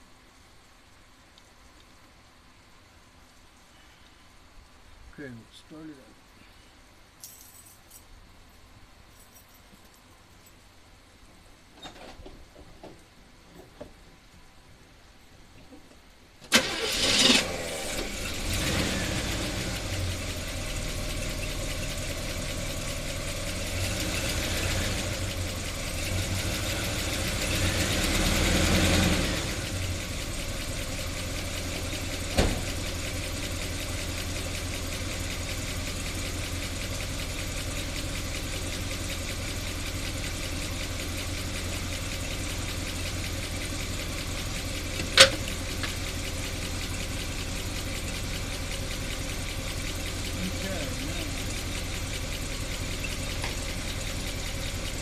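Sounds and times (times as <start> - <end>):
car engine starting and idling: 16.3 - 55.0.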